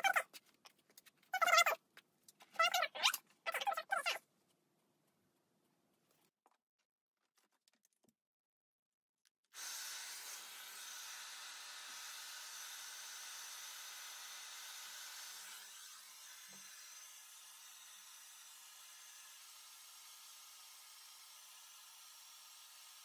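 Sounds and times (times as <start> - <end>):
hair dryer blowing: 9.6 - 17.2.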